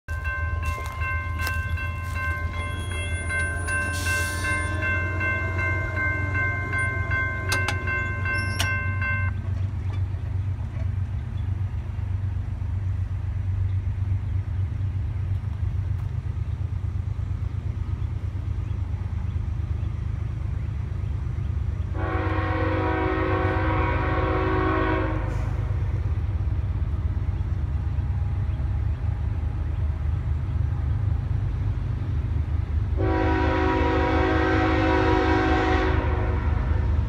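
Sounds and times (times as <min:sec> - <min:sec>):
railroad crossing bell ringing: 0:00.1 - 0:10.0.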